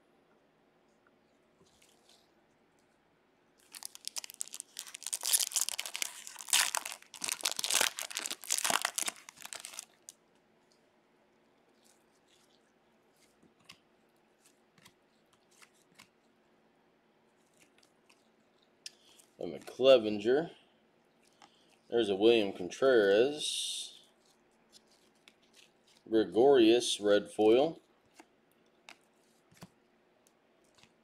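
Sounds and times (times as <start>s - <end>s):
cards being handled: 3.6s - 9.9s, 14.4s - 16.2s
foil wrapper tearing and crinkling: 3.6s - 10.2s.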